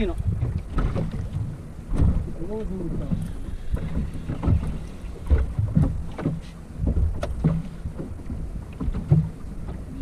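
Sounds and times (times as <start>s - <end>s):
waves slapping boat hull: 0.0s - 10.0s
wind buffeting microphone: 0.0s - 10.0s.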